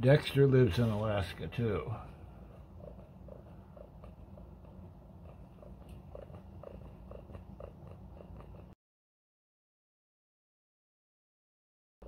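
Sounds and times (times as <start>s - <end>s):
cat purring: 1.5s - 8.8s.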